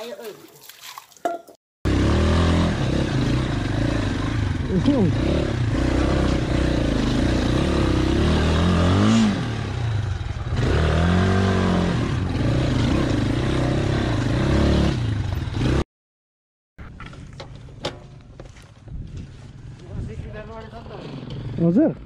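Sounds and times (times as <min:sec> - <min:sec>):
motorcycle engine revving: 0:01.8 - 0:15.9, 0:20.6 - 0:22.0.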